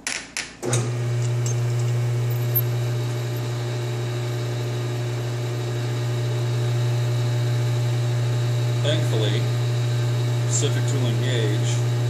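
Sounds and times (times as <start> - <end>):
metal lathe humming: 0.6 - 12.0.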